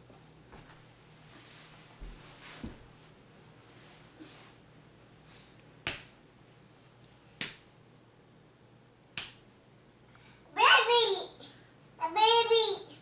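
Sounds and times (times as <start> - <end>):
hand slapping a back: 5.8 - 6.2, 7.4 - 7.7, 9.1 - 9.5.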